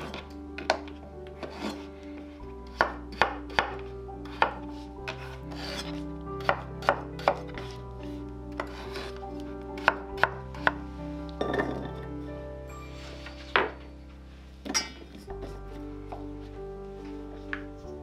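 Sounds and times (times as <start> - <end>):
knife chopping on wooden board: 2.7 - 7.7.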